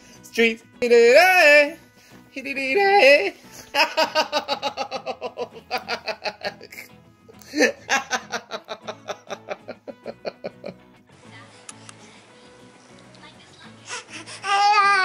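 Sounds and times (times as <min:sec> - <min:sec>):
person laughing: 0:03.6 - 0:10.8.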